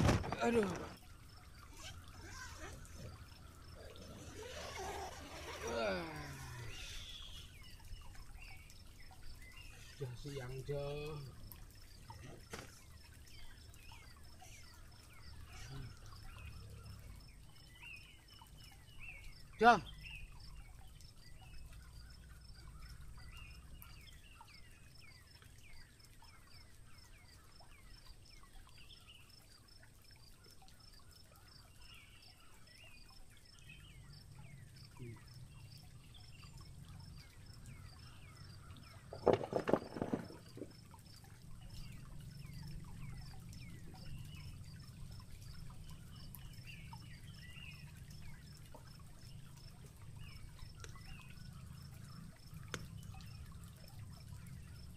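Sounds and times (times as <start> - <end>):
birds chirping: 0.0 - 54.9
water trickling over rocks: 0.0 - 54.9
voice-like cry: 5.5 - 7.0.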